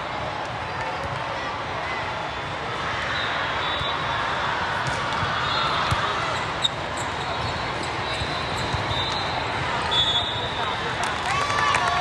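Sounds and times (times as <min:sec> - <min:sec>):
murmur of crowd chatter: 0:00.0 - 0:12.0
ball bouncing on court: 0:04.7 - 0:09.9
sneakers squeaking: 0:04.8 - 0:10.8.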